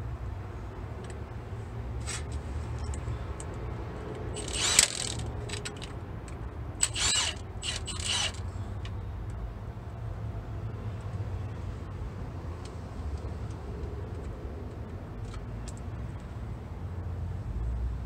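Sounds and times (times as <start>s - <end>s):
cordless impact tool running: 4.4s - 5.2s, 6.8s - 8.4s.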